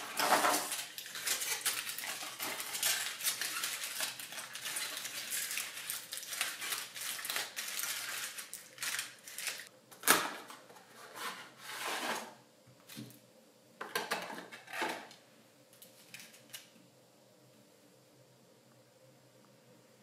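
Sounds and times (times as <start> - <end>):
aluminium foil crinkling: 0.0 - 9.7.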